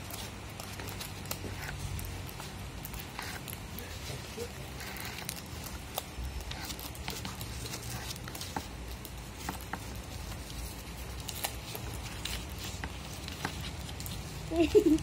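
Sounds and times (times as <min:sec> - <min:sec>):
scissors snipping paper: 0:00.0 - 0:15.0.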